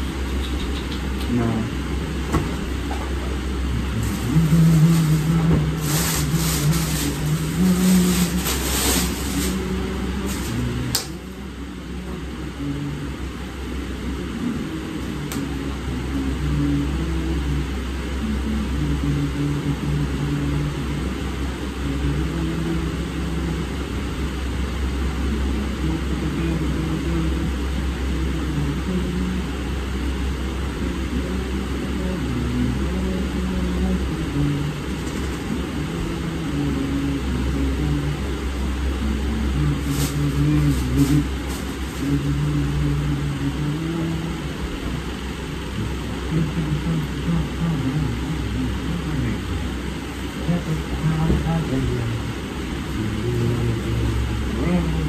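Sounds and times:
electric fan rumbling: 0.0 - 55.0
clothing rustling: 4.0 - 10.6.

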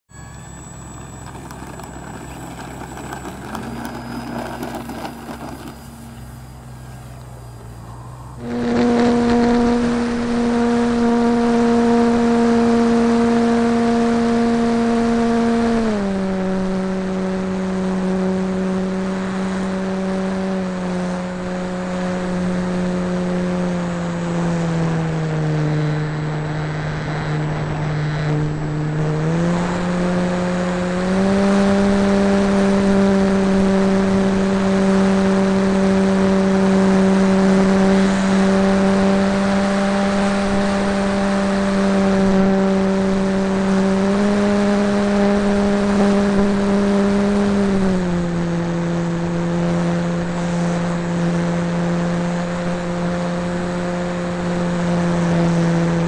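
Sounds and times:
model plane motor buzzing whine: 0.1 - 56.0.

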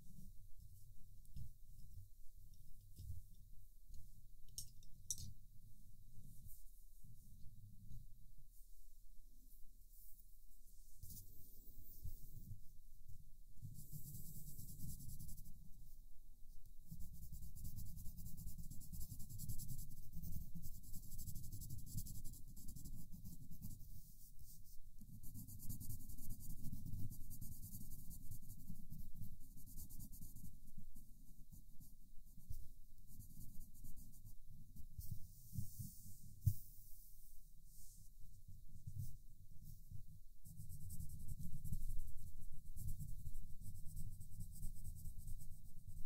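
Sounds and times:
pencil scratching on paper: 13.7 - 15.5, 16.9 - 30.7, 40.4 - 46.0.

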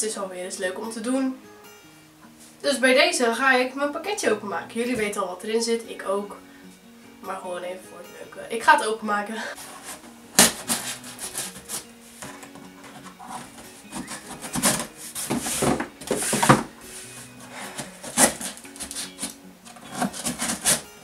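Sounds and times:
soft background music: 0.0 - 21.0
cardboard rustling: 9.6 - 21.0
scissors cutting packing tape: 9.7 - 11.9, 12.9 - 16.6, 17.5 - 21.0.

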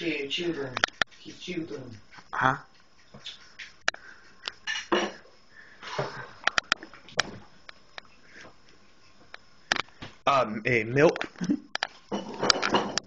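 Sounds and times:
dishes and utensils clinking: 4.6 - 5.2, 12.0 - 13.0.

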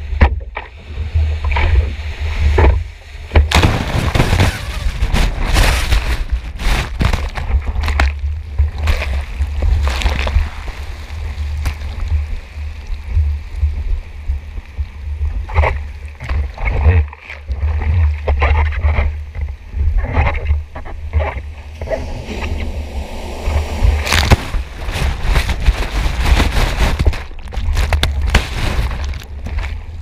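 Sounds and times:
sea water sloshing and splashing: 0.9 - 30.0
sharp water splashes: 3.5 - 7.5, 21.6 - 29.7
wind buffeting camera housing: 18.8 - 30.0.

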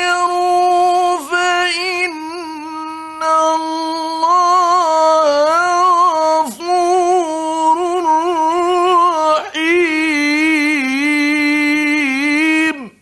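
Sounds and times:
man reciting melodically: 0.0 - 13.0.

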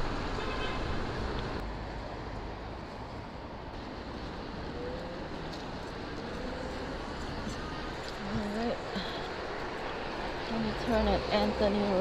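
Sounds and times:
road traffic rushing: 0.0 - 12.0.

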